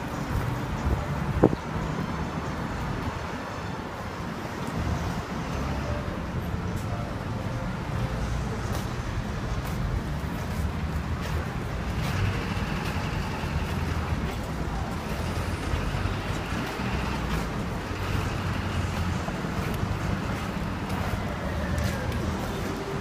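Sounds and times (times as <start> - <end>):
wind buffeting microphone: 0.0 - 5.4
traffic rumble: 0.0 - 23.0.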